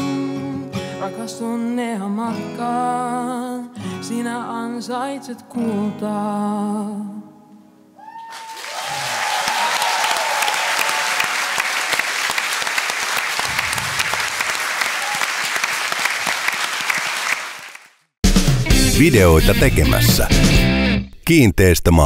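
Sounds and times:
audience applauding: 0:08.2 - 0:18.0.

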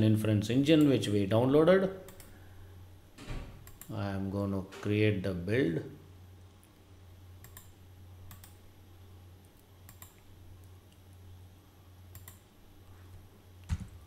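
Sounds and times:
low steady hum: 0:00.0 - 0:14.0
computer mouse clicking: 0:02.1 - 0:02.4, 0:03.6 - 0:03.9, 0:07.4 - 0:08.6, 0:09.4 - 0:11.0, 0:12.1 - 0:12.5.

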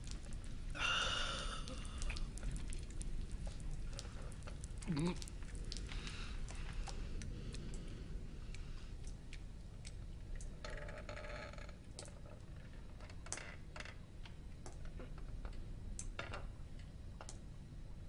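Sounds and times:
low steady hum: 0:00.0 - 0:18.0
small clicks and taps: 0:14.2 - 0:17.4.

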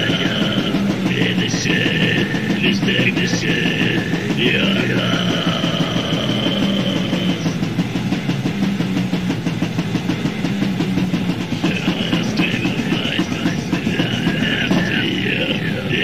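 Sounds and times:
fast pounding drums: 0:00.0 - 0:16.0
heavily distorted guitars: 0:00.0 - 0:16.0.

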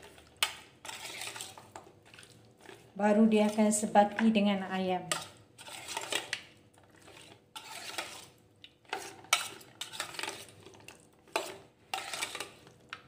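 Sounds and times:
metal spoon scraping bowl: 0:00.8 - 0:01.6, 0:05.0 - 0:06.4, 0:07.0 - 0:10.5, 0:11.3 - 0:12.7.

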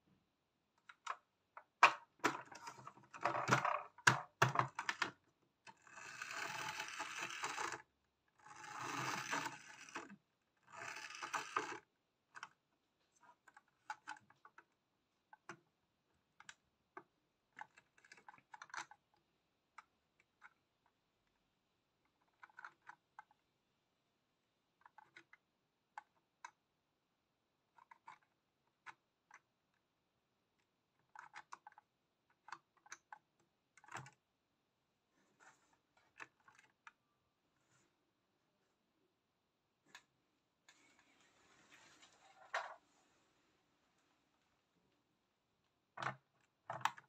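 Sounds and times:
plastic clicks and knocks: 0:00.8 - 0:05.2, 0:46.0 - 0:47.0
toy bus wheels rolling on table: 0:05.7 - 0:11.8.

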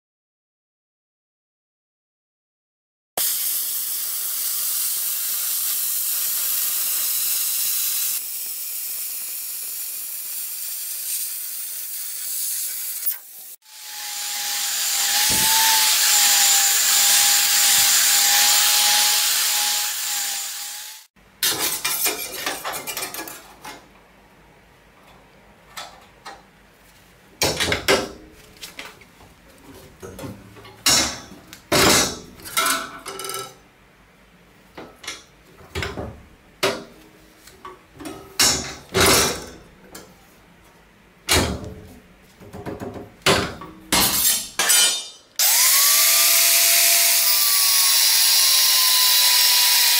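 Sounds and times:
welding arc hissing: 0:03.2 - 0:13.9
grinder on metal: 0:03.2 - 0:21.1, 0:44.1 - 0:49.9.

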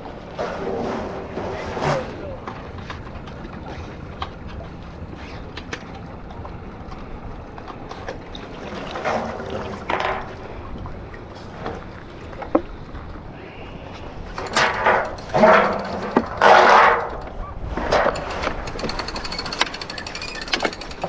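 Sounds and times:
steady low rumble: 0:00.0 - 0:16.4
water sloshing: 0:00.0 - 0:21.0.

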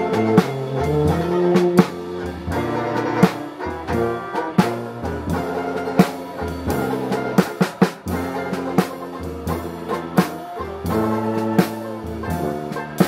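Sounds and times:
drum kit strikes: 0:00.0 - 0:13.0
jazz band playing: 0:00.0 - 0:13.0.

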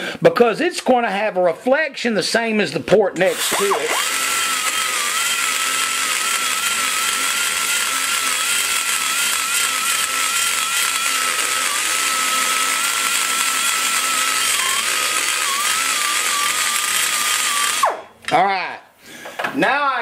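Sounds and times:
die grinder whining on metal: 0:03.3 - 0:18.0.

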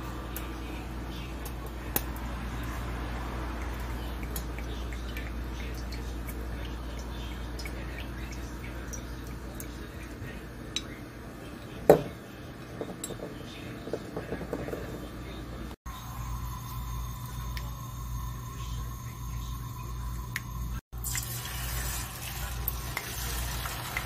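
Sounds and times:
steady low hum: 0:00.0 - 0:20.8
light ticks and drips: 0:03.5 - 0:11.0, 0:17.3 - 0:17.8
oil pouring into a pan: 0:21.0 - 0:24.0.

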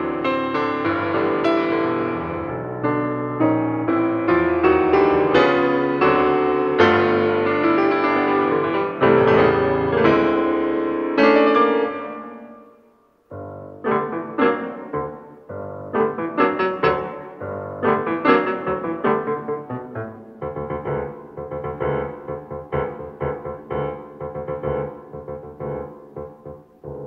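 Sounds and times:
piano music: 0:00.0 - 0:27.0.

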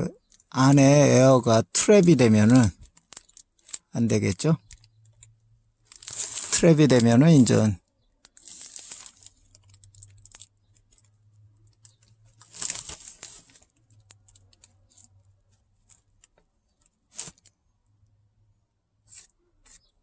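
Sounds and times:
plastic bag rustling: 0:02.0 - 0:05.2, 0:05.8 - 0:17.6
small handling clicks: 0:02.8 - 0:03.9.

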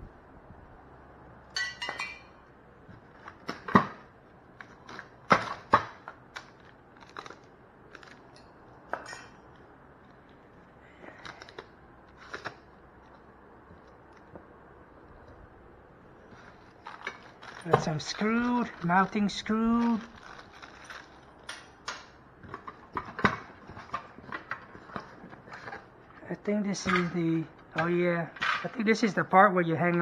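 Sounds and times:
metal parts clinking and knocking: 0:20.7 - 0:23.9.

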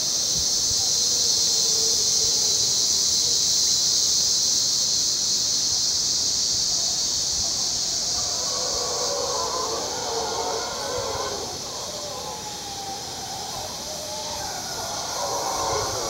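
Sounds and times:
insects droning: 0:00.0 - 0:16.0
distant howler monkeys howling: 0:00.1 - 0:03.5, 0:06.7 - 0:16.0.

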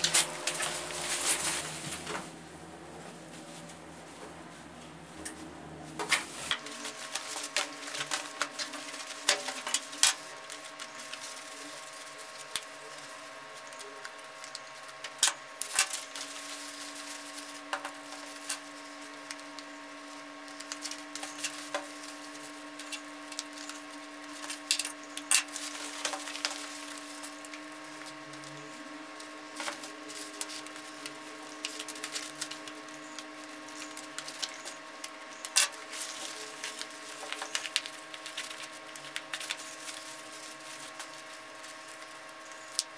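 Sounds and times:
fabric rustling: 0:00.0 - 0:07.4
faint steady hum: 0:00.0 - 0:42.9.

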